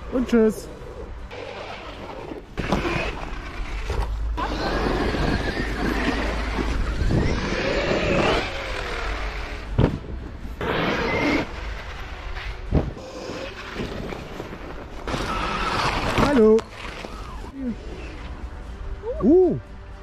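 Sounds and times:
drivetrain and tyre noise: 0.0s - 18.5s
electric motor whining: 1.3s - 9.8s.

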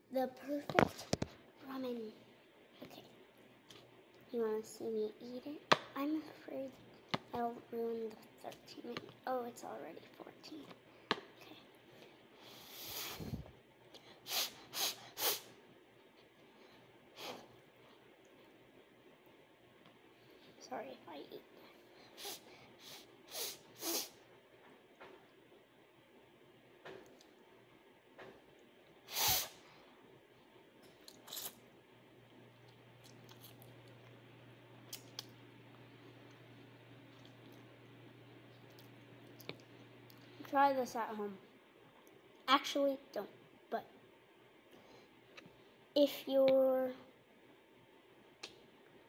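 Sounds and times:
faint low hum: 0.0s - 49.0s
person blowing on food: 14.2s - 15.5s, 22.1s - 24.2s, 29.1s - 29.7s
person eating noodles: 30.9s - 31.7s.

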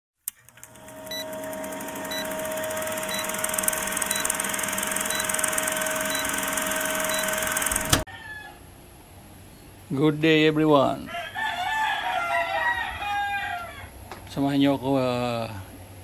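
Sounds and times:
projector whirring and clattering: 0.3s - 8.0s
short high beeps: 4.1s - 4.4s, 5.1s - 5.5s, 6.1s - 6.4s, 7.0s - 7.5s.

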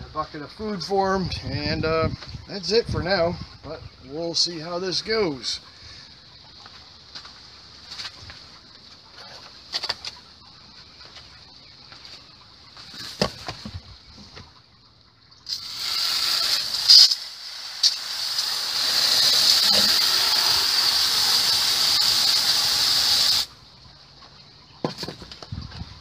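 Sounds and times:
hose nozzle spraying water: 15.5s - 23.5s.

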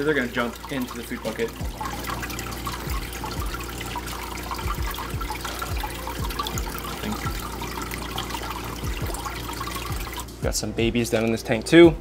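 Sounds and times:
fish gulping and splashing: 0.0s - 10.4s
water trickling: 0.0s - 12.0s.

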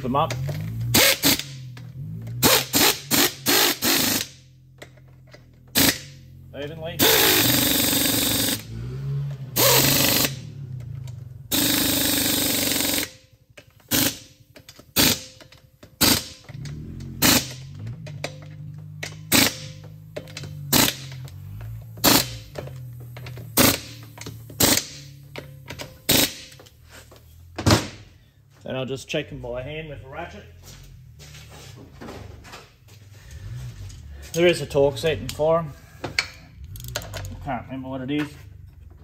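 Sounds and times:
air ratchet running: 0.6s - 1.7s, 2.3s - 4.5s, 5.7s - 6.3s, 7.0s - 8.8s, 9.6s - 10.5s, 11.5s - 27.3s.

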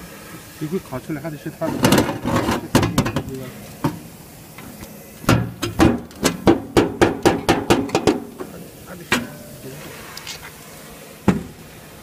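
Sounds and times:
sharp knocks: 5.3s - 8.3s.

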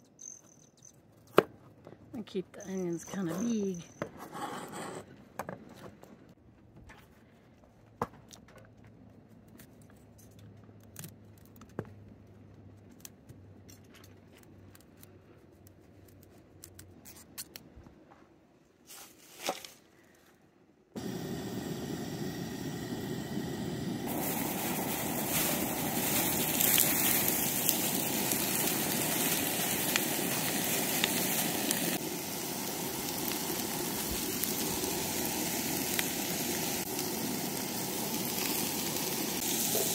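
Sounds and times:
vegetables sizzling in oil: 21.0s - 39.9s.

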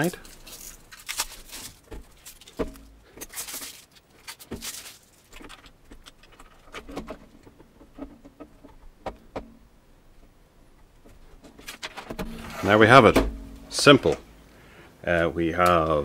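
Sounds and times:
plastic film peeling and crinkling: 0.0s - 7.6s.

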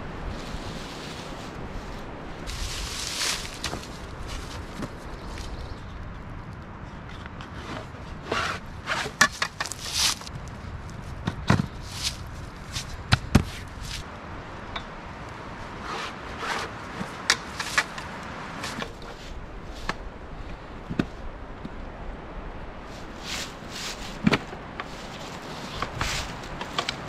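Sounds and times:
footsteps on dry leaves: 0.0s - 5.8s, 9.0s - 10.3s, 11.8s - 14.1s, 22.8s - 27.0s
fabric rustling and scraping: 0.3s - 5.0s, 7.6s - 10.3s, 22.9s - 27.0s.

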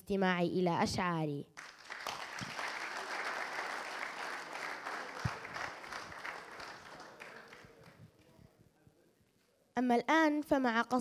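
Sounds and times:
audience applauding: 1.6s - 8.0s.

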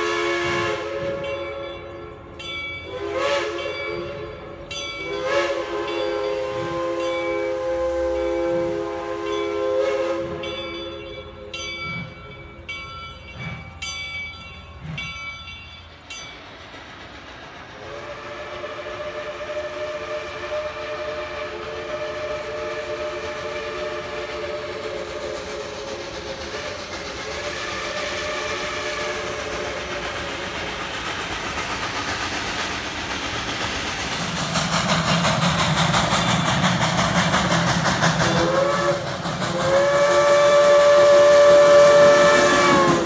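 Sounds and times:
steam locomotive chime whistle: 0.0s - 43.0s
locomotive bell ringing: 1.1s - 17.2s.

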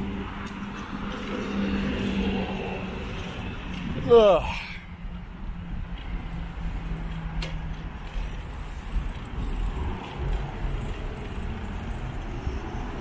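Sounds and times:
bicycle tyres on pavement: 0.2s - 4.8s, 5.8s - 13.0s
wind on microphone: 2.2s - 4.2s, 7.9s - 11.0s
sharp click: 7.1s - 7.7s.

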